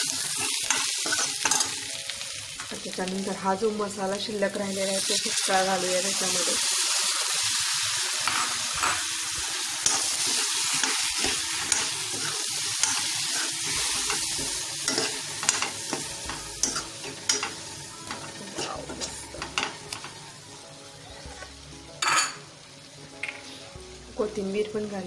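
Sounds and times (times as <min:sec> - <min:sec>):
paste sizzling in hot oil: 0:00.0 - 0:20.6
metal ladle scraping pan: 0:09.8 - 0:20.1.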